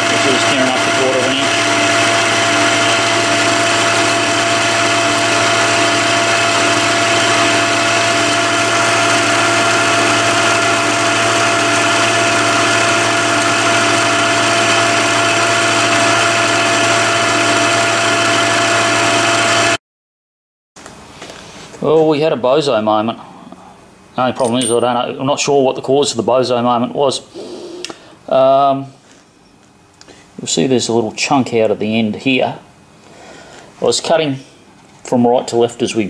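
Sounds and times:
milling machine cutting metal: 0.0 - 19.8.

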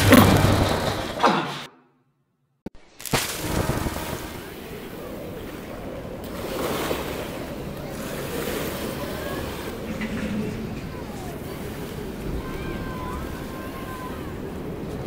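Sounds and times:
rushing water: 3.2 - 15.0.

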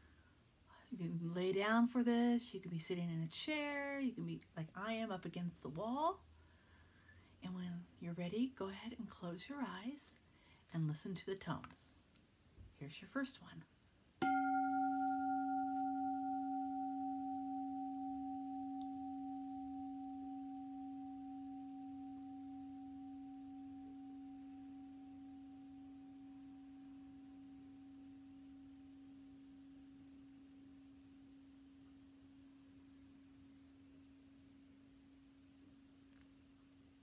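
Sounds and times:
singing bowl ringing: 14.2 - 32.4.

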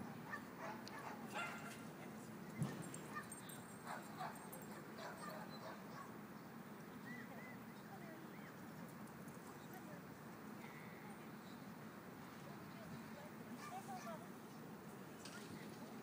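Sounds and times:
small dogs barking and yipping: 0.1 - 1.9, 2.5 - 6.2, 13.6 - 14.3.

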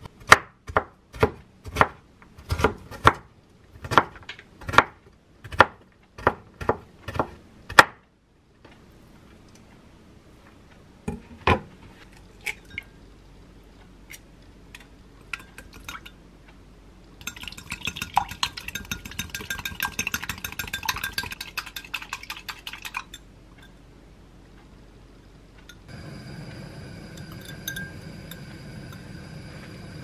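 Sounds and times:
fork clinking on glass bowl: 17.2 - 22.2, 27.2 - 28.0.

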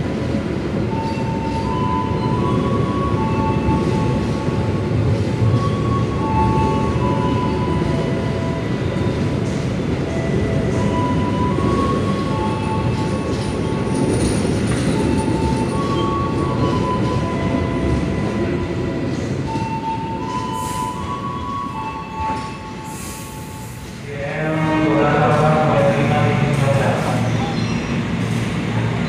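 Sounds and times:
train wheels rumbling: 0.0 - 29.0
high wheel squeals: 26.5 - 29.0.

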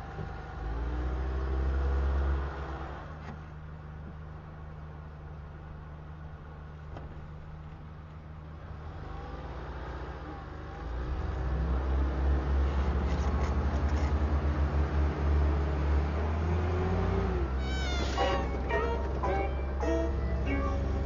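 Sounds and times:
truck engine revving: 8.7 - 21.0.

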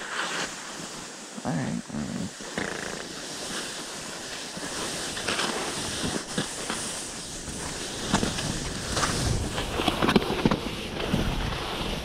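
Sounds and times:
skis scraping over snow: 0.0 - 12.0
wind rushing over microphone: 7.1 - 12.0.

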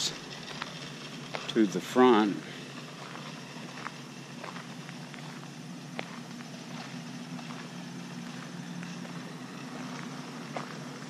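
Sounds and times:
steady low hum: 0.0 - 11.0
footsteps on gravel: 0.1 - 11.0.

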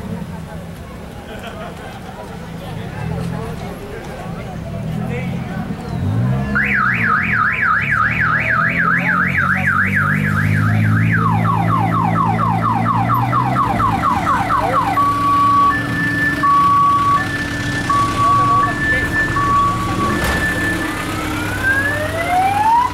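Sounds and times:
car alarm siren: 6.6 - 22.9.

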